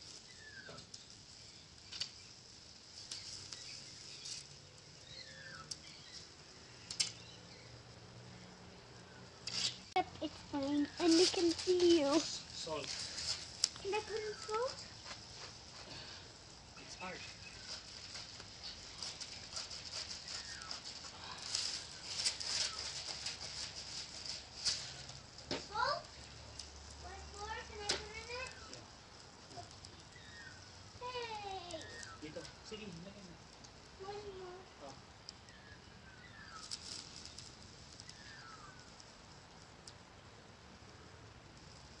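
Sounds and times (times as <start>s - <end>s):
steak sizzling: 0.0s - 42.0s.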